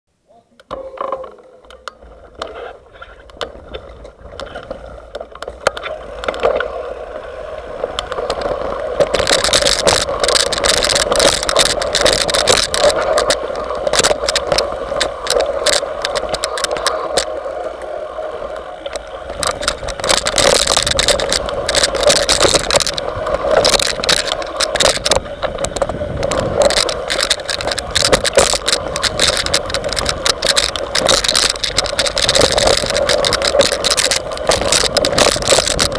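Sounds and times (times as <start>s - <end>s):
bike rattling and knocking: 0.7s - 6.7s, 7.7s - 17.4s, 18.8s - 35.9s
bike tyre noise on dirt: 0.7s - 35.9s.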